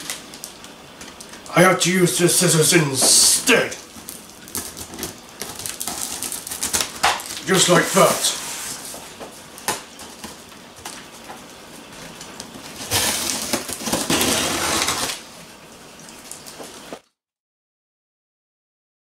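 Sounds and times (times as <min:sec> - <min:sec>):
scissors cutting packing tape: 0:03.9 - 0:07.4, 0:12.8 - 0:15.2.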